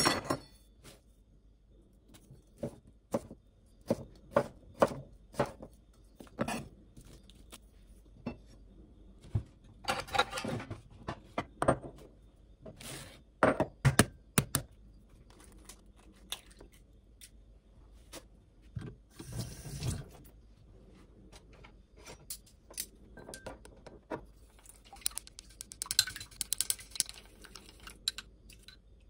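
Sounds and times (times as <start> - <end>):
kitchen clatter: 9.8 - 12.0.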